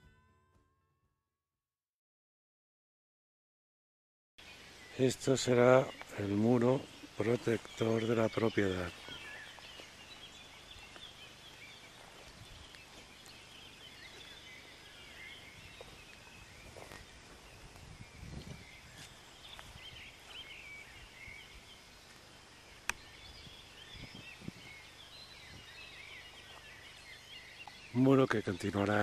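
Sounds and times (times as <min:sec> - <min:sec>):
birds chirping: 0:04.4 - 0:29.0.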